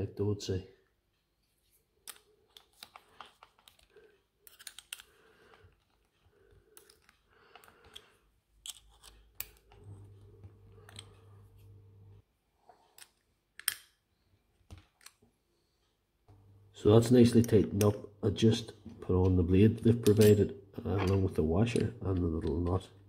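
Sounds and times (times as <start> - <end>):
faint low hum: 9.4 - 12.2.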